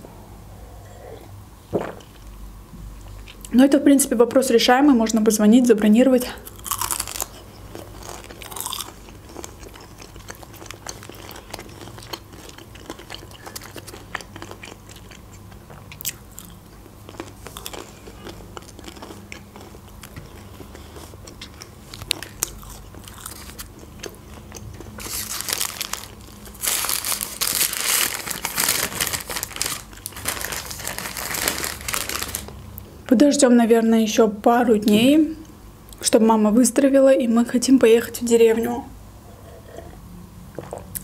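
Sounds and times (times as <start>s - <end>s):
chewing crispy food: 6.4s - 32.6s
paper wrapper crinkling: 25.0s - 32.6s.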